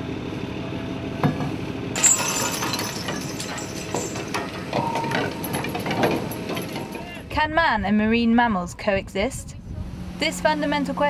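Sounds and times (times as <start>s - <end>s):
hauling machinery hum: 0.0s - 8.2s, 9.1s - 11.0s
metallic clinks and knocks: 2.0s - 7.1s.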